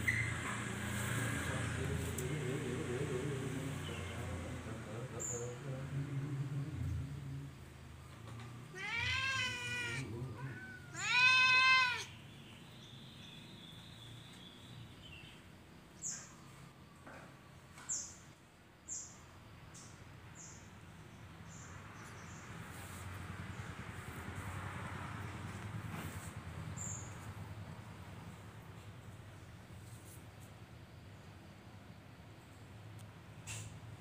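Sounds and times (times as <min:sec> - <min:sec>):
cat meowing: 0:08.7 - 0:12.2.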